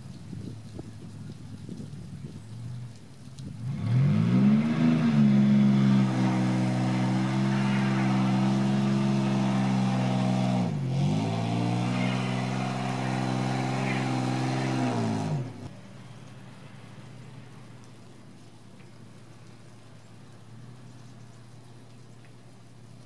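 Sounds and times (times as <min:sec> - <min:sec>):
wheels spinning in snow: 0:00.0 - 0:16.2
car engine revving hard: 0:03.6 - 0:15.7.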